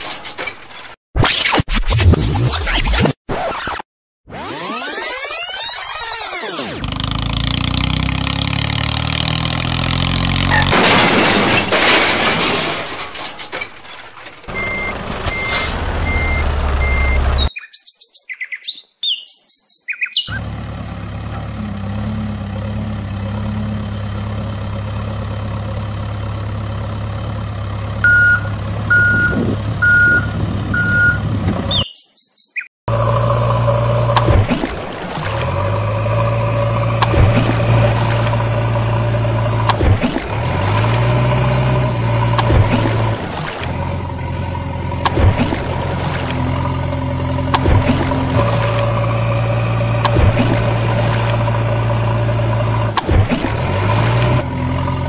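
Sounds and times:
truck engine running: 0:06.3 - 0:17.5, 0:20.3 - 0:31.8, 0:32.9 - 0:55.0
reversing beeps: 0:14.6 - 0:17.5, 0:28.0 - 0:31.3
chirping: 0:17.4 - 0:20.4, 0:31.7 - 0:32.7.

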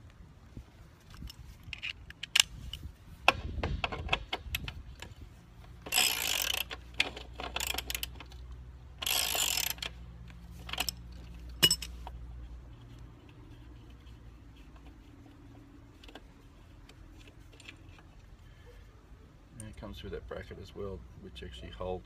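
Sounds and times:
ratchet wrench clicking: 0:05.8 - 0:08.4, 0:09.0 - 0:10.0.

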